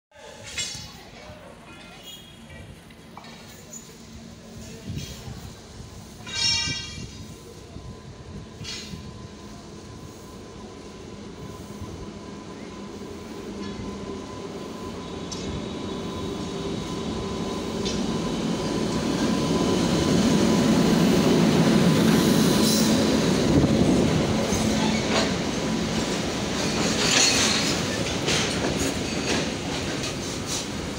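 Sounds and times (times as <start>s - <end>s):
electric locomotive rumbling past: 1.4s - 30.9s
wheels clicking over rail joints: 26.6s - 30.7s.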